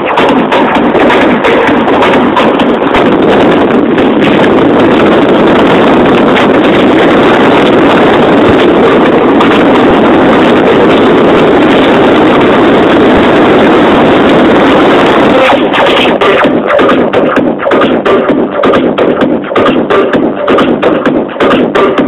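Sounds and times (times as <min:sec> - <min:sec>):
car road noise: 0:00.0 - 0:16.3
wind rushing over microphone: 0:00.0 - 0:17.6.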